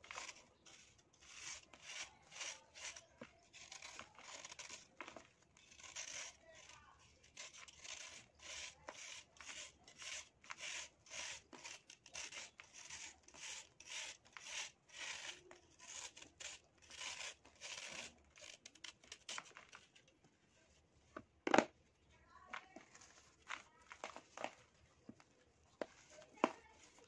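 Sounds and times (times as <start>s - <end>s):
sand sifting: 0.0s - 5.2s
knife scraping sand block: 0.0s - 19.9s, 25.8s - 27.0s.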